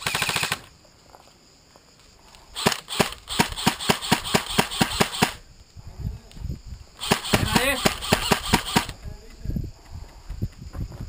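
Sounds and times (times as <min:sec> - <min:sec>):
airsoft rifle firing: 0:00.0 - 0:00.7, 0:02.6 - 0:05.4, 0:07.0 - 0:09.0.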